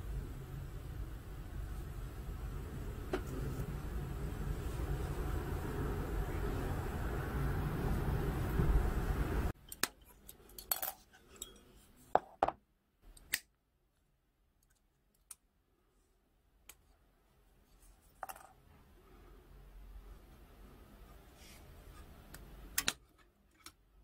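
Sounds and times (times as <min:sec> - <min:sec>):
steady rushing noise: 0:00.0 - 0:09.5.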